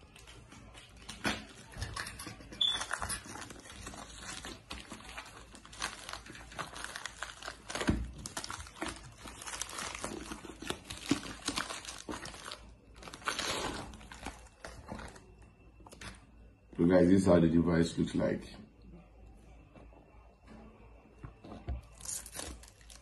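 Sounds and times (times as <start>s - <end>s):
plastic mailer crinkling: 2.6s - 16.2s.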